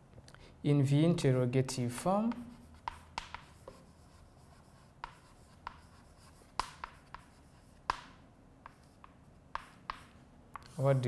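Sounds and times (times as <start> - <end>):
chalk tapping on board: 1.8 - 11.0
chalk scratching on blackboard: 2.0 - 11.0.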